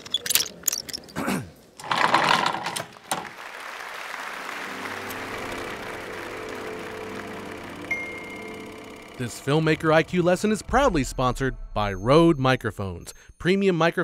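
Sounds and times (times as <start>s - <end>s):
mechanical whirring with low hum: 5.6s - 12.0s.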